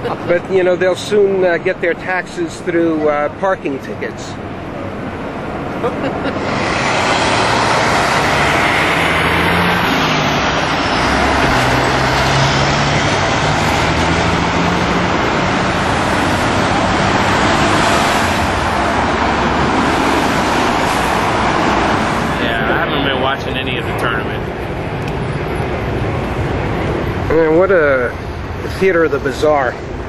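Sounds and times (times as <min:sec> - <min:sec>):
road traffic noise: 0:00.0 - 0:30.0.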